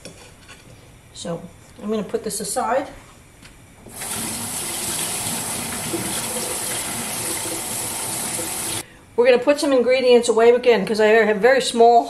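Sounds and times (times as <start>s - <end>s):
water running from a tap: 3.9s - 8.8s.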